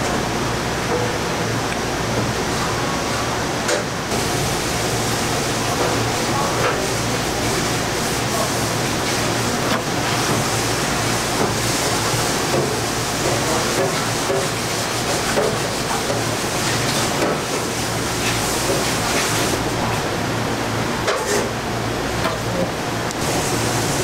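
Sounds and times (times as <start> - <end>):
kitchen background rushing: 2.5 - 20.0.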